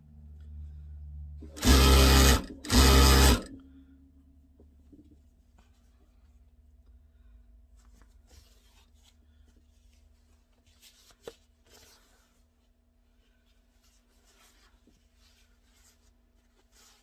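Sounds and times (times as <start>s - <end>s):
fabric rustling and sliding: 7.7s - 17.0s.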